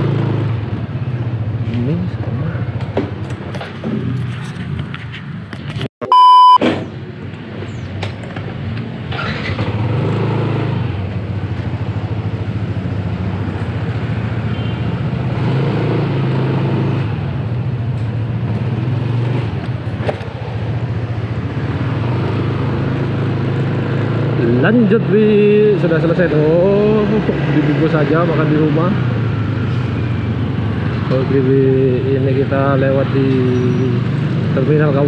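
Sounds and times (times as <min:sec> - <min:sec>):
road noise: 0:00.0 - 0:35.0
electronic beep: 0:06.0 - 0:06.6.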